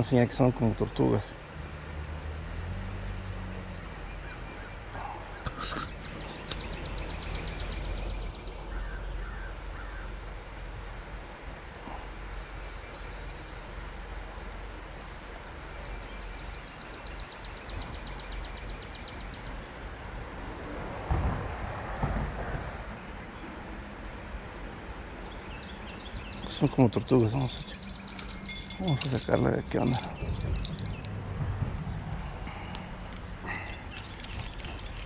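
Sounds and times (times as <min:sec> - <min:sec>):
bird calls: 0:25.4 - 0:31.2, 0:32.5 - 0:35.0
creek low rumble: 0:26.6 - 0:35.0
fast rattling trill: 0:27.4 - 0:31.2.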